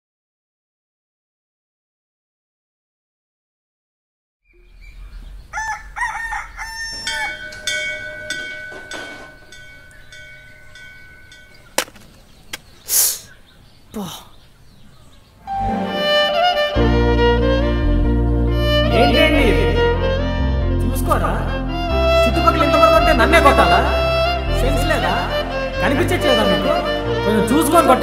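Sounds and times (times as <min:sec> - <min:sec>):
rooster crowing: 0:05.0 - 0:07.8
steady ringing tones: 0:06.4 - 0:12.4
gliding lead melody: 0:15.4 - 0:28.0
sustained low bass notes: 0:15.5 - 0:28.0.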